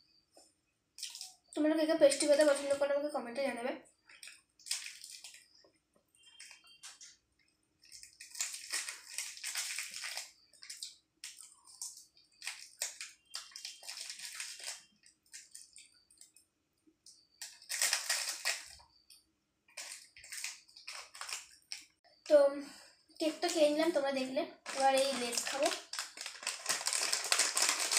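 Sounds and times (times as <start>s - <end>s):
plastic wrapper crinkling: 1.0s - 1.5s, 4.1s - 5.6s, 7.8s - 16.4s, 17.4s - 18.8s, 19.7s - 22.0s, 23.2s - 27.9s.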